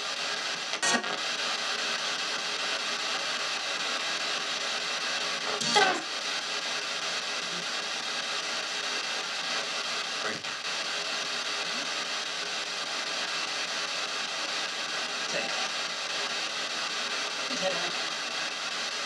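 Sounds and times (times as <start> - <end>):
radio static hiss: 0.0 - 19.0
clipped radio fragment: 5.5 - 6.1.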